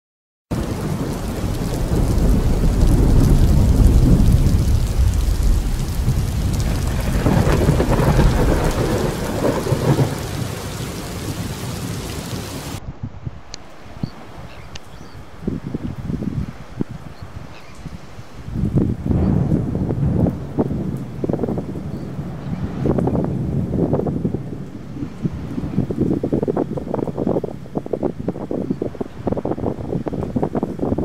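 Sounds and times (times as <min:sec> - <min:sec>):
rain hiss: 0:00.5 - 0:12.8
thunder rumbling: 0:00.5 - 0:12.8, 0:18.5 - 0:31.0.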